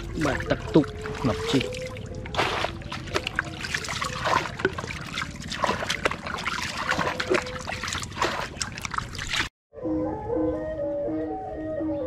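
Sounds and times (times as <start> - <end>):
scooping and splashing water: 0.0 - 9.5
water dribbling and trickling: 0.0 - 9.5.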